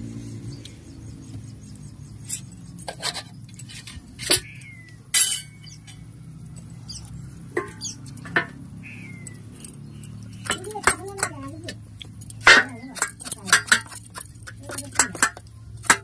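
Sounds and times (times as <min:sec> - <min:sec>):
metal plate clinking: 0:05.1 - 0:06.1, 0:07.5 - 0:08.6, 0:09.6 - 0:16.0.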